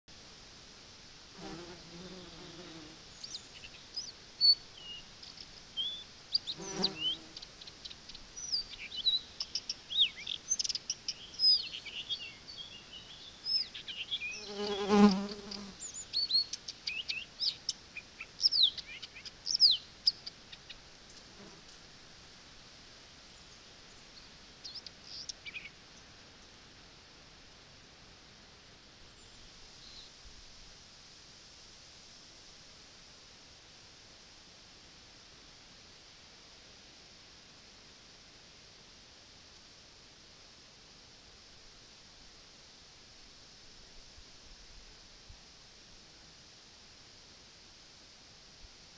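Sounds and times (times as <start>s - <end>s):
small birds chirping: 2.6s - 21.2s.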